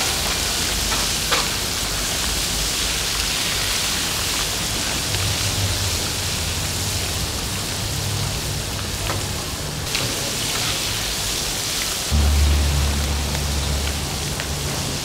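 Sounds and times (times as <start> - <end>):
deep-frying sizzle in oil: 0.0 - 15.0.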